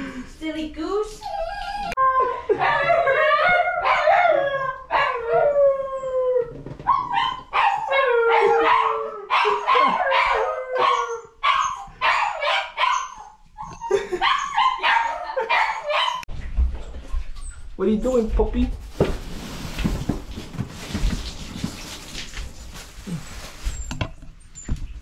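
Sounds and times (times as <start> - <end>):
puppy howling and whining: 1.2 - 16.3.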